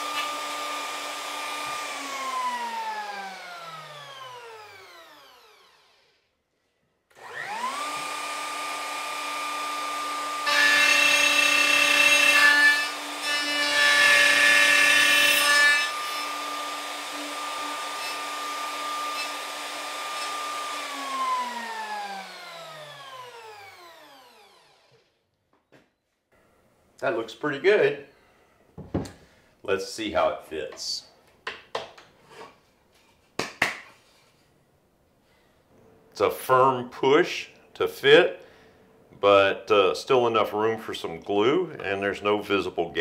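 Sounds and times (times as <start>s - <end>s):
router cutting wood: 0.0s - 6.2s, 7.1s - 25.2s
router whining: 0.0s - 6.3s, 7.1s - 25.2s.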